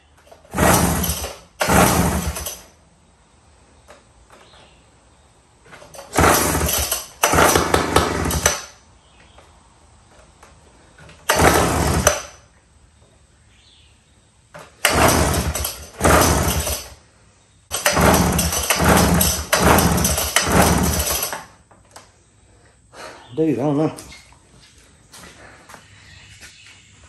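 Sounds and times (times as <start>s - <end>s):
outboard recoil starter rope pulls: 0.3s - 2.8s, 5.7s - 8.8s, 11.2s - 12.4s, 14.7s - 17.0s, 17.7s - 21.5s.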